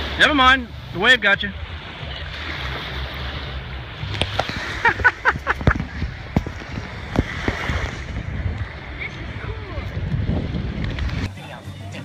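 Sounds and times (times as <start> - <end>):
small waves washing: 0.0 - 12.0
wind buffeting microphone: 3.6 - 12.0.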